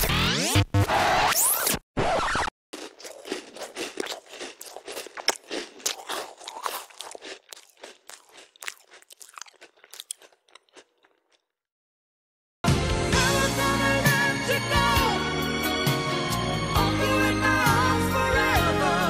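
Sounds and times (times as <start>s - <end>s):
person chewing crunchy food: 2.7s - 11.6s.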